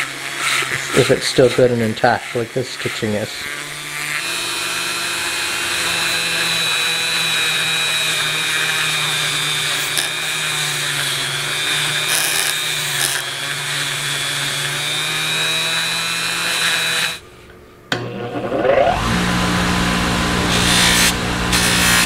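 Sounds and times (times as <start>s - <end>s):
rotary tool wire brushing: 0.0s - 17.2s, 20.5s - 22.0s
bristles scratching metal: 9.7s - 10.3s, 11.9s - 13.3s, 20.5s - 22.0s.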